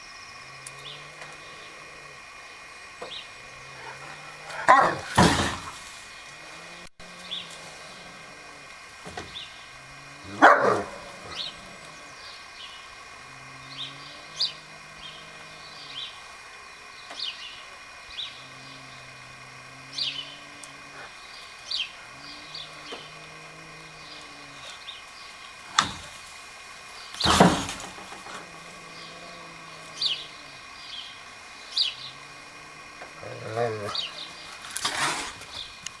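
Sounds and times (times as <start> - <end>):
small birds chirping: 0.0 - 36.0
steady high hum: 0.0 - 36.0
dog barking: 4.5 - 5.4, 10.3 - 11.0.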